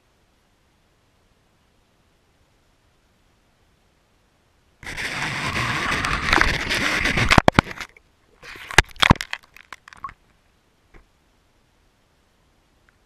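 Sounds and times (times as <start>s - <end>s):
loud crackling rush: 4.8s - 9.9s.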